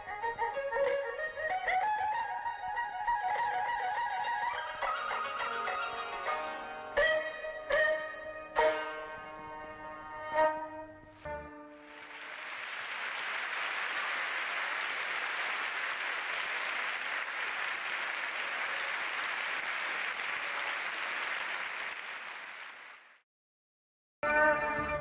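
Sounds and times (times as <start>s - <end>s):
crowd applauding: 11.8s - 23.2s.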